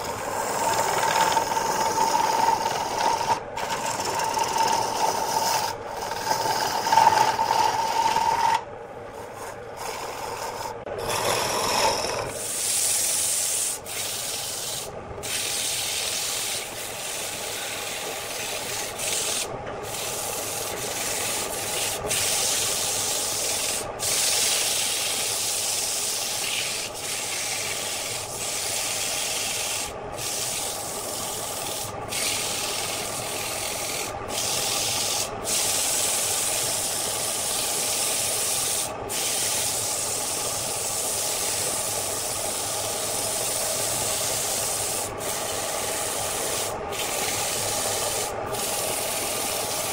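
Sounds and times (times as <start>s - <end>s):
electric lathe running: 0.0s - 8.6s, 9.4s - 12.4s
lathe tool cutting wood: 0.0s - 8.6s, 9.3s - 12.4s
sandpaper rubbing hiss: 12.4s - 37.0s, 37.6s - 49.9s.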